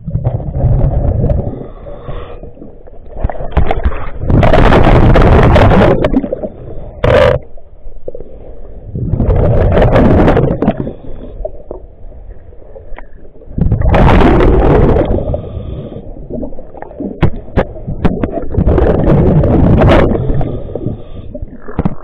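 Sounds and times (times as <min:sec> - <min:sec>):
exhaled bubbles gushing: 0:00.0 - 0:01.7, 0:02.6 - 0:08.2, 0:08.9 - 0:11.8, 0:13.5 - 0:15.6, 0:16.2 - 0:22.0
sharp clicks underwater: 0:03.0 - 0:07.5, 0:16.7 - 0:20.8, 0:21.4 - 0:22.0.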